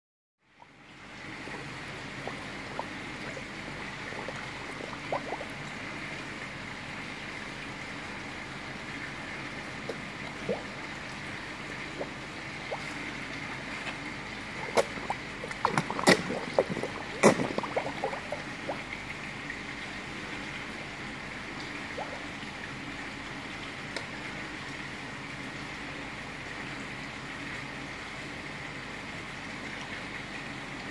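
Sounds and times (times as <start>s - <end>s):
trickle of running water: 0.4s - 30.9s
fish splashing and slurping: 0.5s - 24.6s.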